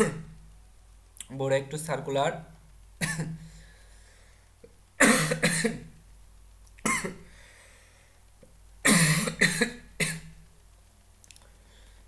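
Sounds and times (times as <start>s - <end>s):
man coughing: 3.0s - 3.4s, 5.0s - 5.9s, 6.9s - 7.2s, 8.8s - 10.3s.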